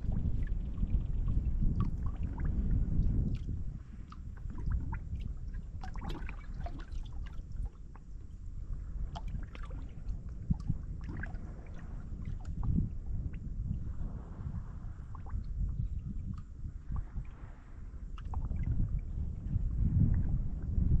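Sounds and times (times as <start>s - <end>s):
small splashes and ticks: 0.0s - 8.4s, 9.0s - 13.5s, 15.1s - 17.4s, 18.2s - 18.9s
steady low rumble: 0.0s - 21.0s
water lapping against boat hull: 0.0s - 21.0s.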